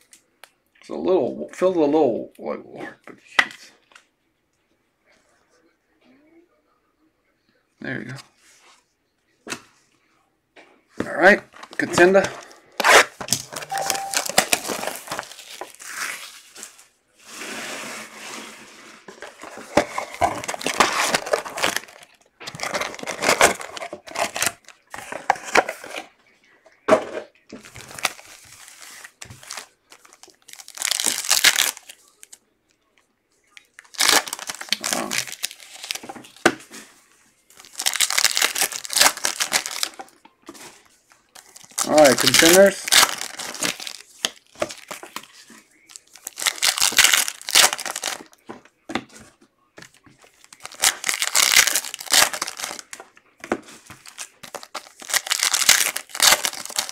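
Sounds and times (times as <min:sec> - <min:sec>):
foil wrappers crinkling: 0:11.6 - 0:17.0, 0:19.2 - 0:25.9, 0:27.6 - 0:32.4, 0:33.6 - 0:36.9, 0:37.5 - 0:48.4, 0:49.8 - 0:56.9.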